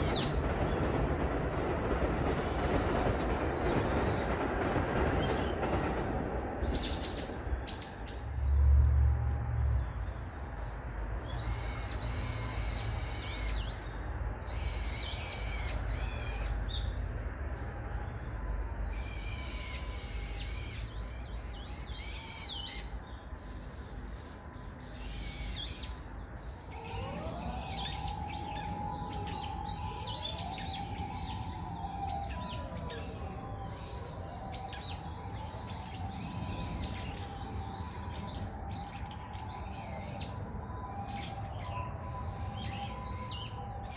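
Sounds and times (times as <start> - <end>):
steady low rumble: 0.0 - 14.6
songbirds singing and calling: 0.0 - 43.9.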